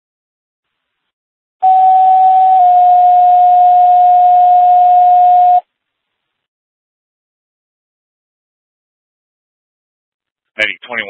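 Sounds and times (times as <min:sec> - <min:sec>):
two-tone paging tone: 0:01.6 - 0:05.6.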